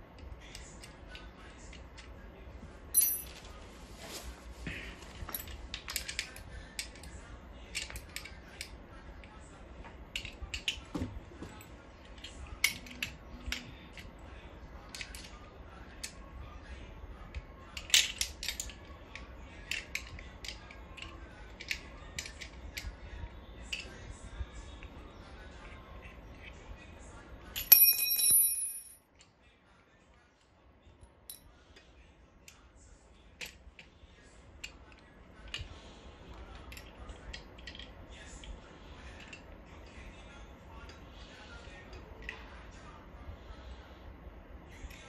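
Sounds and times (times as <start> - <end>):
metal parts clicking and tapping: 3.0 - 3.4, 17.8 - 22.9, 27.6 - 29.3.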